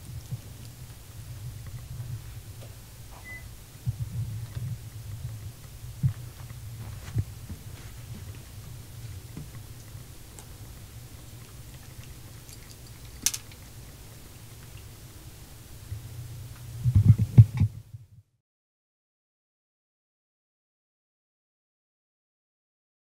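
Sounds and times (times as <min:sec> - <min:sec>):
low hum: 0:00.0 - 0:18.3.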